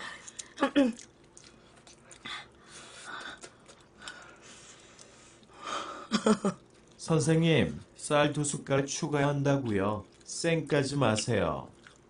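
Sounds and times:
person chewing: 0.0 - 5.6, 6.4 - 7.0, 9.2 - 12.0.

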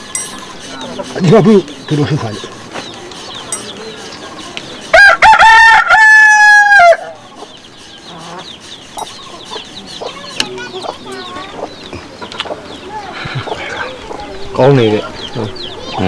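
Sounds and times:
rooster crowing: 4.9 - 7.2
faint bird chirps: 7.1 - 16.0.

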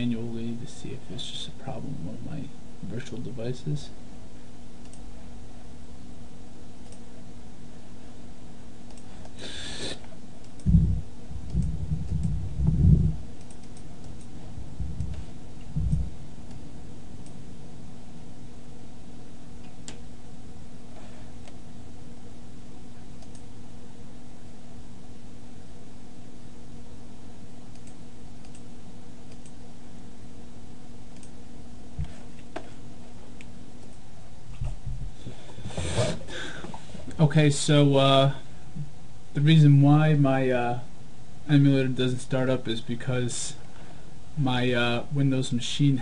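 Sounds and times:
steady low hum: 0.0 - 46.0
short hiss: 9.4 - 10.1.

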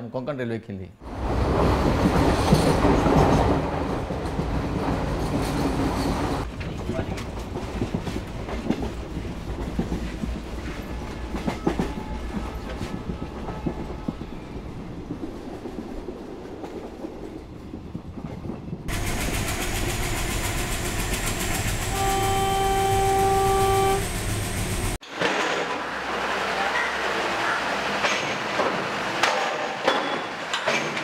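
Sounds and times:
train wheels clicking over rails: 1.1 - 26.5
train horn blast: 21.8 - 24.3.

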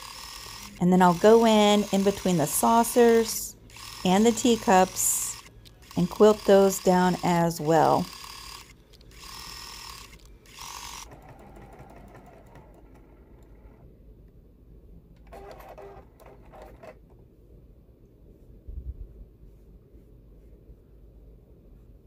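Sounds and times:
sewing machine stitching: 0.0 - 13.9, 15.2 - 17.0.

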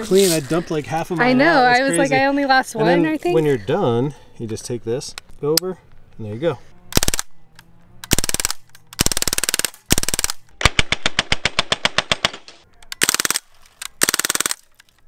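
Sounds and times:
bb pistol rapid pops: 8.1 - 13.4, 14.0 - 14.6.

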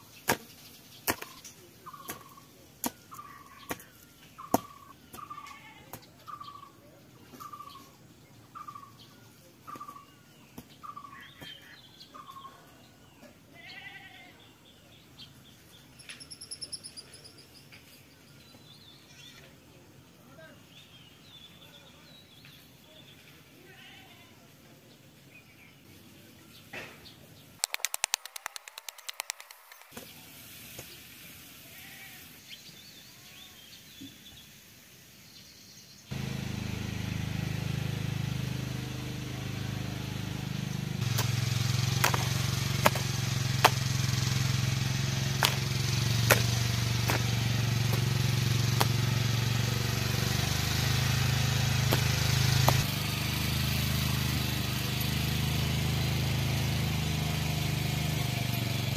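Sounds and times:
quiet outdoor sound: 0.0 - 57.0
rapid clicking: 27.6 - 29.9
sharp clicks: 27.6 - 30.0
small engine running: 36.1 - 58.9.

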